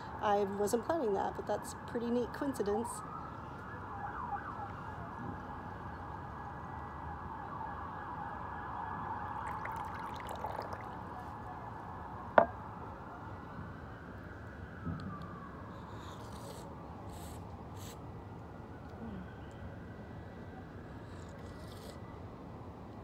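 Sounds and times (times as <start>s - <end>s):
tea pouring into cup: 9.4s - 11.4s.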